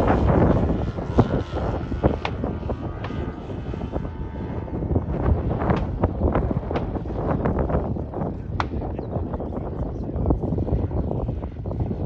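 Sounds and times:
model plane engine in flight: 0.0s - 12.0s
wind buffeting microphone: 0.0s - 12.0s.

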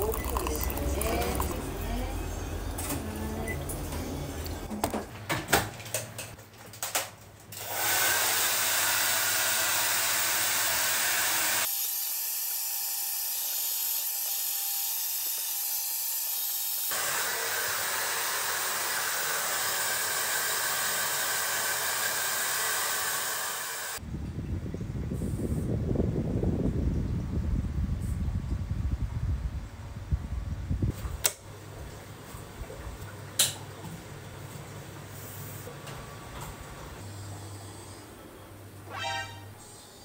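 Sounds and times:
appliance blowing air: 7.6s - 11.7s, 16.8s - 24.0s
faint hum: 36.7s - 40.0s.

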